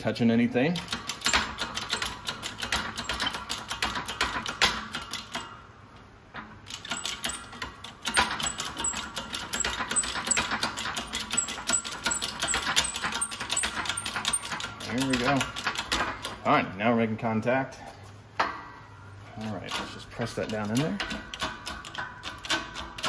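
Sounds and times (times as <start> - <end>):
shop press mechanical clicks: 0.7 - 5.6, 6.4 - 16.4, 19.6 - 23.0.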